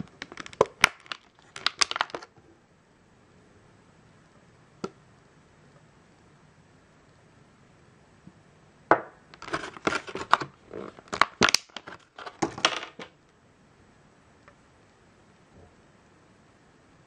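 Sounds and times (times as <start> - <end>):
plastic blister tray crackling: 0.0 - 2.3, 9.3 - 13.1.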